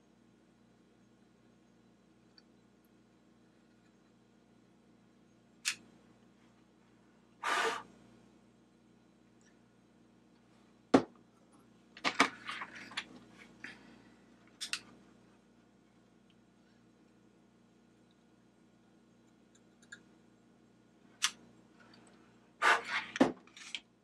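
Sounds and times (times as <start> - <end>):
short hiss: 7.4 - 7.9, 22.6 - 23.1.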